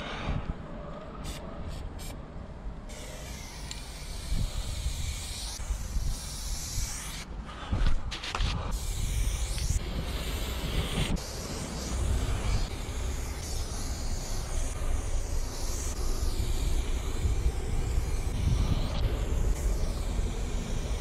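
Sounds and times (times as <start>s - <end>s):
spray-paint can hissing: 1.2s - 2.2s, 2.9s - 7.3s, 8.7s - 21.0s
wind rumble on microphone: 7.6s - 11.2s, 16.8s - 21.0s.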